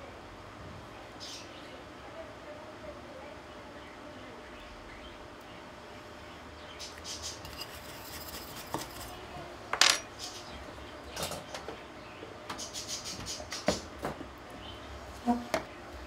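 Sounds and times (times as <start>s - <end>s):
tools clicking and clattering: 9.8s - 10.1s.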